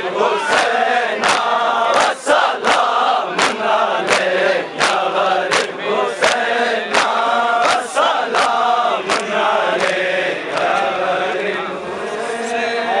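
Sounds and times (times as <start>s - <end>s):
men chanting in unison: 0.0s - 13.0s
palms slapping chests: 0.5s - 10.0s.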